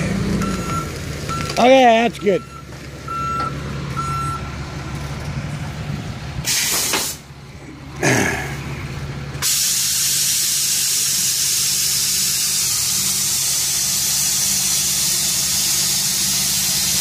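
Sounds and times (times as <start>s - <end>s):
diesel truck engine running: 0.0s - 17.0s
loud steady hiss: 6.4s - 7.3s, 9.4s - 17.0s.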